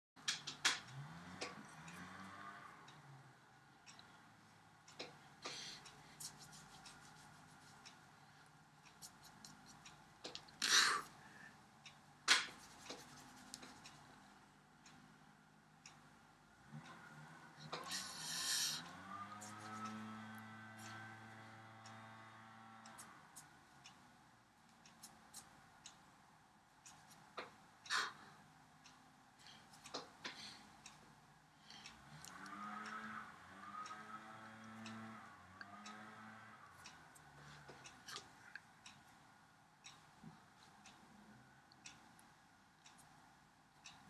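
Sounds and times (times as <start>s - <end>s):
fist rubbing across palm: 6.2s - 7.8s
hands clicking and brushing: 6.2s - 7.9s, 8.9s - 10.6s, 12.3s - 13.9s
faint ticks: 22.8s - 24.0s.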